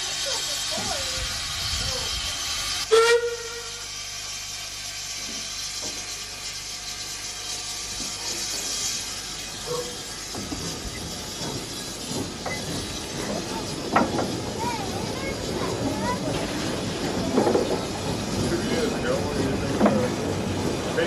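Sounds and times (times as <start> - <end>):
steam locomotive hissing: 0.0 - 21.0
steam whistle toot: 2.8 - 3.9.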